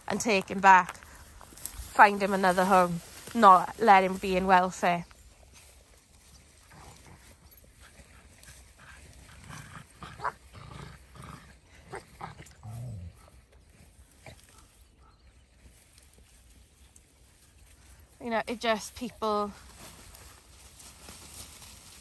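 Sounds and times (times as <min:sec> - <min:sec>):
dogs scuffling in wood chips: 0:01.4 - 0:09.4, 0:15.6 - 0:22.0
low dog grunt: 0:09.4 - 0:13.3.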